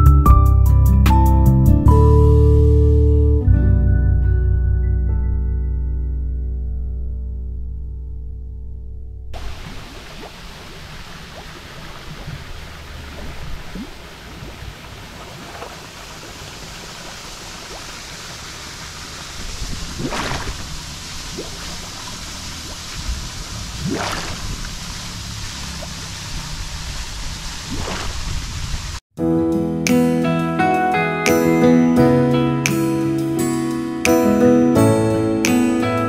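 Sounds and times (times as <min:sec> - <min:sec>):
river water rushing: 0:09.4 - 0:29.0
water splashes: 0:09.4 - 0:29.0.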